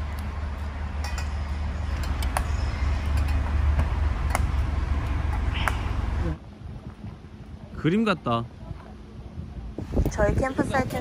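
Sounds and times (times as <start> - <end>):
wind rumble on microphone: 3.0 - 11.0.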